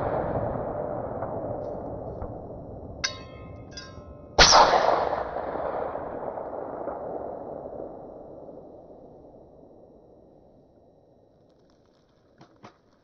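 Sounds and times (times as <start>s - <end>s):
short metallic ring: 3.0s - 4.3s
rifle shot with echo: 4.4s - 10.3s.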